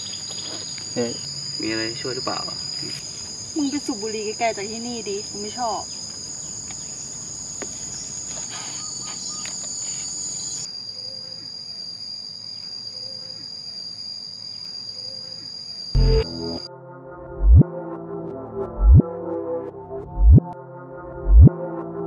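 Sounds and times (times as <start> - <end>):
insects buzzing: 0.0 - 16.7.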